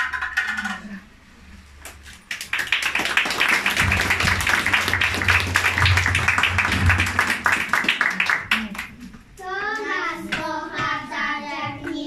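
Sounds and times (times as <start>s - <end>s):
audience clapping: 2.2s - 9.1s.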